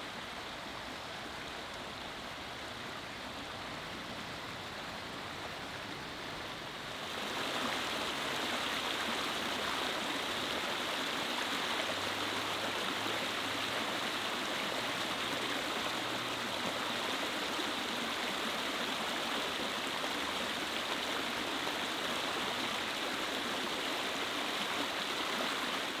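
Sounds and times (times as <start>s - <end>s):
running water rushing: 0.0s - 26.0s.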